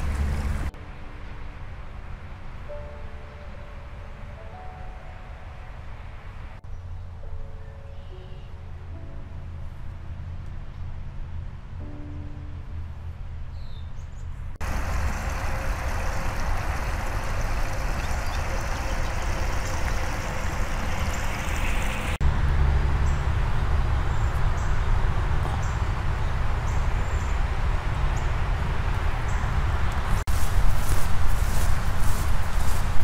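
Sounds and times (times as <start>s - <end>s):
wind rumble on microphone: 12.5s - 33.0s
stream rushing over stones: 14.6s - 22.2s.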